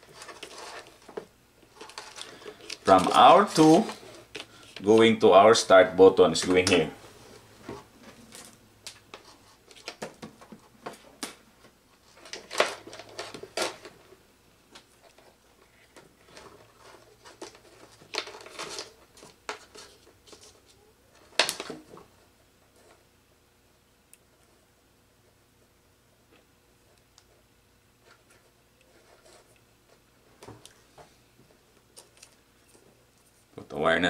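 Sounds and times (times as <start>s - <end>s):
wires clicking and rustling in hands: 0.0s - 5.1s, 8.0s - 14.0s, 14.7s - 23.0s, 31.7s - 33.6s.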